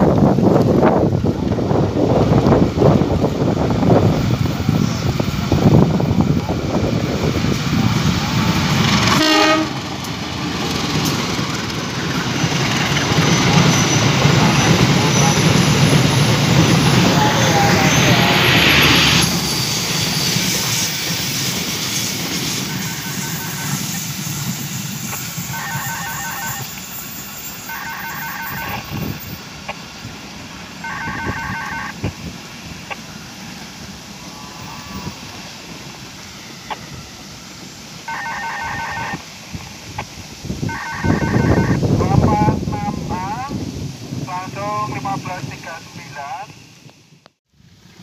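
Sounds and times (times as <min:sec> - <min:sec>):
wind noise: 0:00.0 - 0:27.0, 0:28.3 - 0:33.1, 0:38.4 - 0:47.2
passenger train passing on rails: 0:00.0 - 0:48.0
electronic two-tone ringing: 0:25.6 - 0:26.7, 0:27.7 - 0:28.9, 0:30.8 - 0:31.9.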